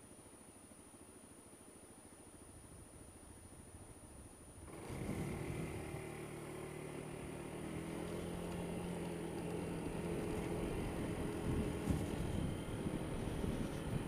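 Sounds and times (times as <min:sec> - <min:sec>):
scooter engine revving: 0:04.7 - 0:14.0.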